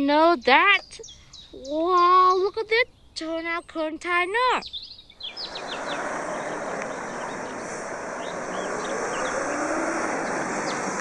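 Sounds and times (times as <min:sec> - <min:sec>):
birds chirping: 0:00.0 - 0:11.0
faint engine tone: 0:05.2 - 0:11.0
truck driving past: 0:05.2 - 0:11.0.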